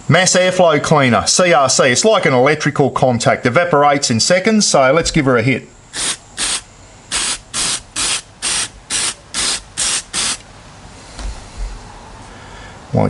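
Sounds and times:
aerosol can spraying: 5.9 - 10.4.

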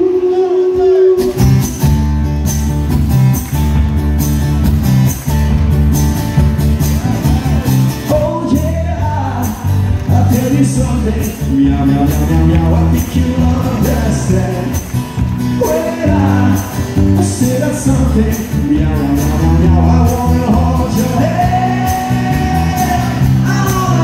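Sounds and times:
man singing: 0.0 - 1.6, 7.2 - 24.0
live band playing: 0.0 - 24.0.

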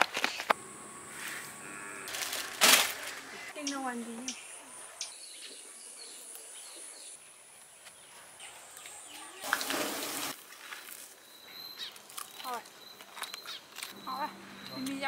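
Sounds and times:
high-pitched insect buzz: 0.5 - 4.4
faint bird chirps: 11.2 - 15.0.

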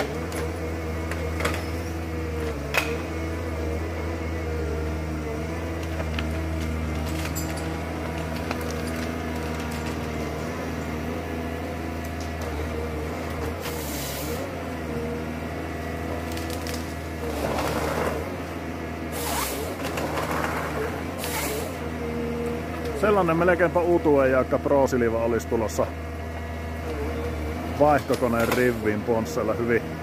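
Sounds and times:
hydraulic whine: 0.0 - 23.4
diesel engine running under load: 0.0 - 30.0.

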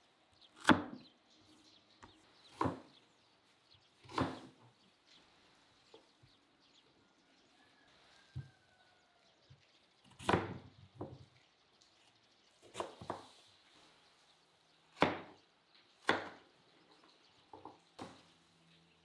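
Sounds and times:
knife chopping potatoes: 0.6 - 1.0, 2.5 - 2.9, 4.0 - 4.5, 10.1 - 10.6, 12.6 - 13.3, 14.9 - 15.4, 16.0 - 16.4.

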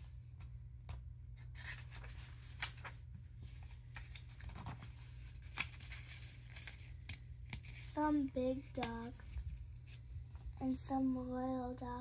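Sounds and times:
low steady hum: 0.0 - 12.0
page turning: 1.4 - 10.2
paper rustling: 1.4 - 10.4.

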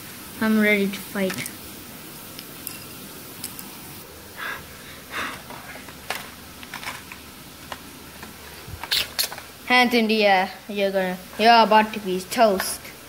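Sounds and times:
short breaths: 4.4 - 5.8
toys clicking on tiled floor: 5.3 - 9.5.

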